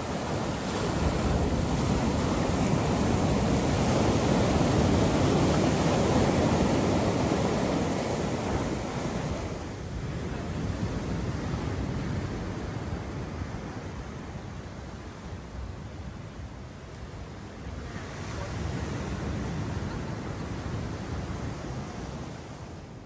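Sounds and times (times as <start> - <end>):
seawater rushing and foaming: 0.0 - 12.2
ocean surf breaking on rocks: 0.0 - 14.2.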